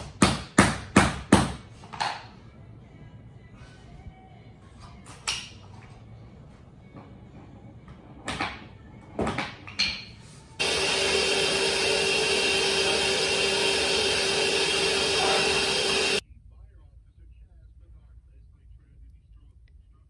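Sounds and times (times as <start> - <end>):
power-tool motor whining: 10.6 - 16.2.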